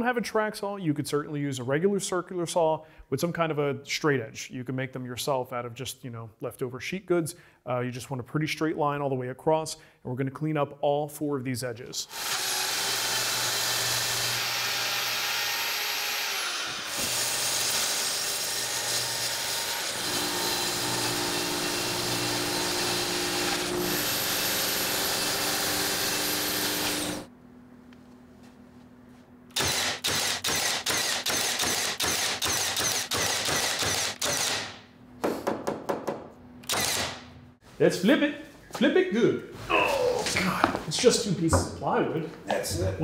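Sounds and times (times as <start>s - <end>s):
short saw bursts: 12.1s - 27.3s, 29.5s - 34.8s, 36.7s - 37.2s
track saw cutting plywood: 12.1s - 27.3s.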